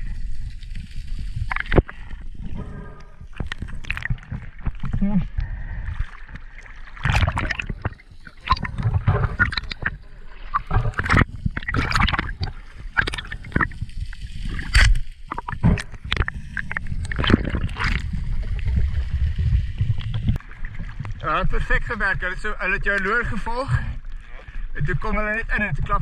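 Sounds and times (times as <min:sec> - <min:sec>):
seawater sloshing and splashing: 0:03.1 - 0:21.7
low rumble: 0:15.2 - 0:22.4.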